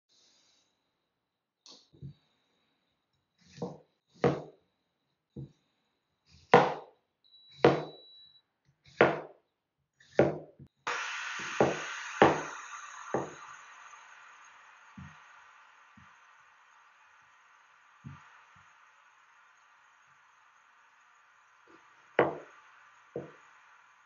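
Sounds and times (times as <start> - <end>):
steady hiss: 0.1 - 0.8, 10.9 - 24.0
knife chopping on cutting board: 3.5 - 4.5, 6.4 - 6.9, 7.6 - 8.0, 8.9 - 9.3, 10.1 - 10.5, 22.2 - 22.4.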